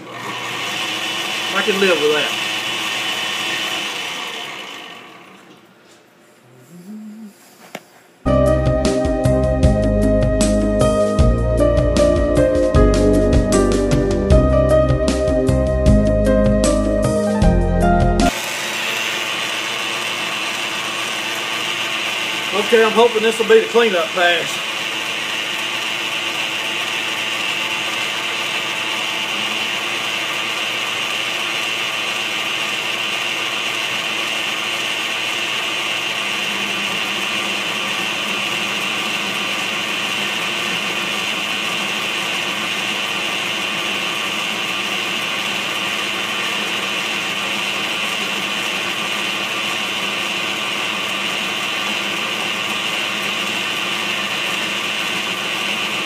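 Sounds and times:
metal lathe running: 0:00.0 - 0:05.5, 0:18.3 - 0:56.0.

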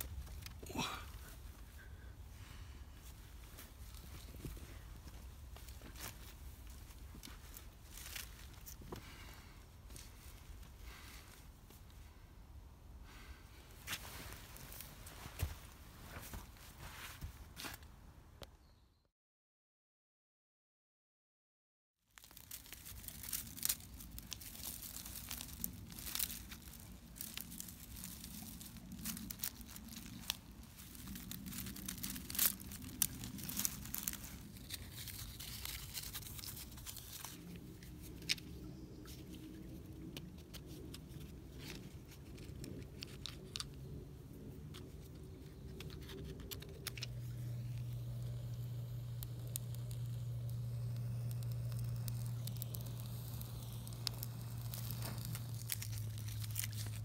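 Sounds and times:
twigs and bark tearing: 0:00.0 - 0:01.9, 0:03.0 - 0:11.3, 0:22.1 - 0:57.0
steady low hum: 0:22.6 - 0:57.0.

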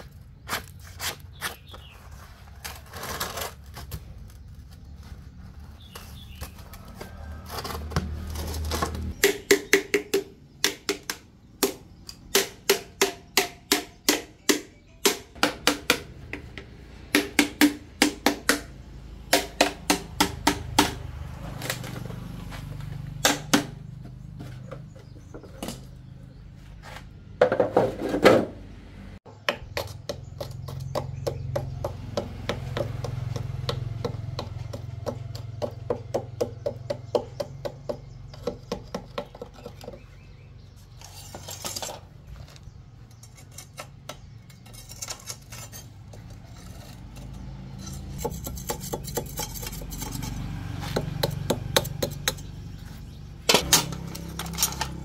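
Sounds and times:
metal scraping clatter: 0:40.9 - 0:42.2, 0:43.1 - 0:51.0, 0:53.5 - 0:55.0
metal taps and knocks: 0:50.9 - 0:52.6.

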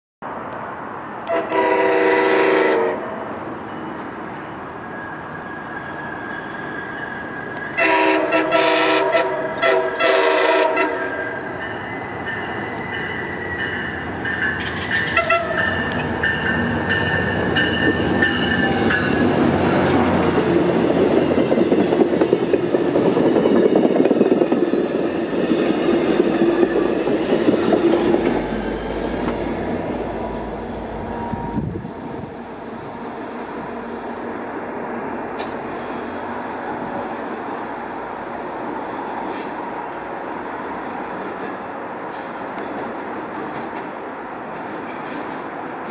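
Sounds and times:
train air horn blasts: 0:01.2 - 0:03.2, 0:07.8 - 0:11.4, 0:15.0 - 0:16.0
wheels clattering over rail joints: 0:14.3 - 0:25.1.

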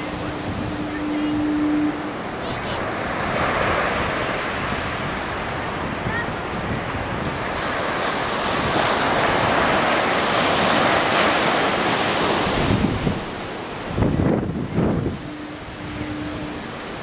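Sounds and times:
heavy surf breaking: 0:00.0 - 0:17.0
wind buffeting microphone: 0:00.0 - 0:17.0.

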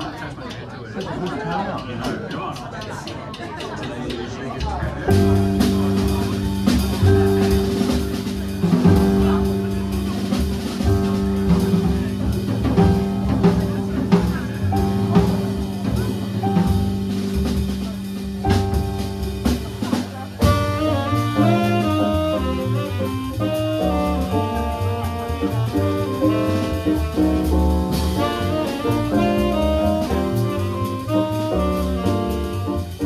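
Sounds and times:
drum kit beat: 0:02.0 - 0:33.0
keyboard chords: 0:20.4 - 0:33.0
lead melody line: 0:20.4 - 0:33.0.

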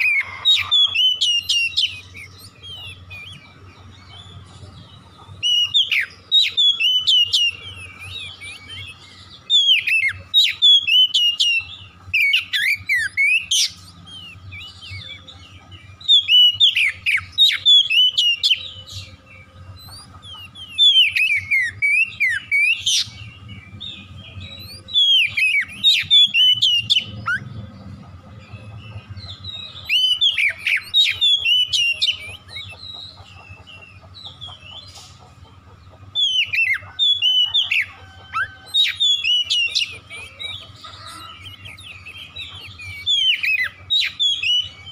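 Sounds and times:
bird singing whistled phrases: 0:05.4 - 0:15.3, 0:16.0 - 0:19.2, 0:19.9 - 0:27.6, 0:36.2 - 0:44.9.

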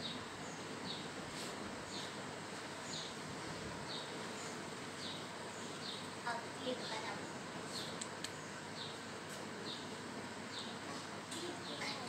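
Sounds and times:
steady low hiss: 0:00.0 - 0:12.0
small bird chirping: 0:01.8 - 0:02.2, 0:02.8 - 0:03.2, 0:03.8 - 0:09.0, 0:09.6 - 0:10.8.

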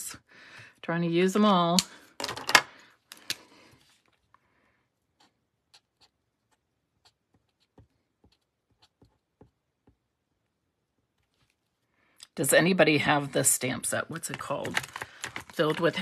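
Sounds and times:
soft paper rustle: 0:03.5 - 0:04.4, 0:11.1 - 0:11.9.

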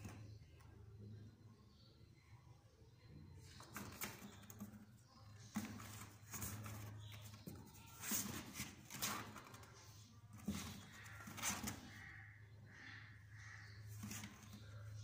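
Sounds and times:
claws scratching cardboard: 0:03.8 - 0:12.1.

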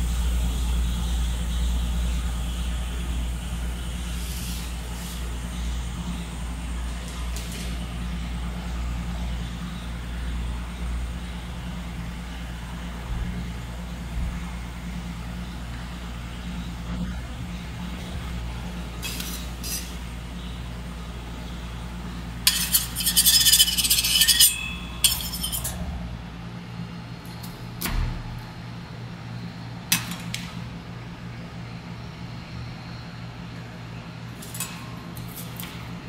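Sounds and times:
steady low hum: 0:00.0 - 0:36.0
metal utensils clinking and scraping: 0:19.0 - 0:20.0, 0:22.5 - 0:25.8.

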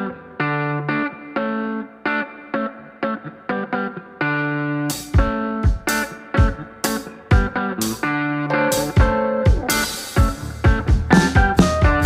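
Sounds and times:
melodic music with drum beat: 0:04.9 - 0:12.0.

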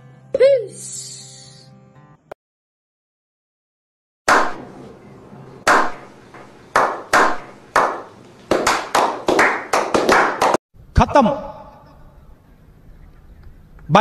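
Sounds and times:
men slow-clapping: 0:05.7 - 0:10.6.

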